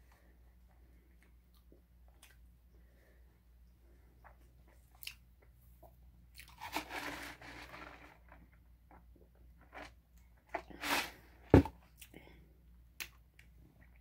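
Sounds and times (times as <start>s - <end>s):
foam cup rustling and crunching: 6.4s - 8.6s, 9.6s - 11.7s.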